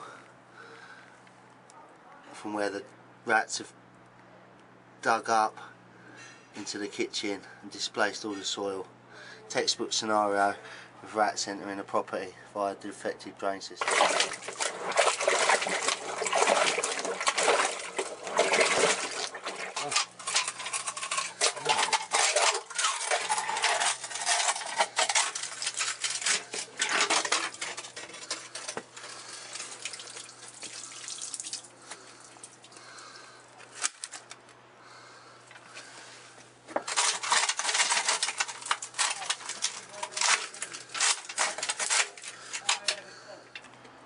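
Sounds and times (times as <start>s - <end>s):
drain rods clattering and scraping: 13.8s - 32.0s, 36.7s - 43.0s.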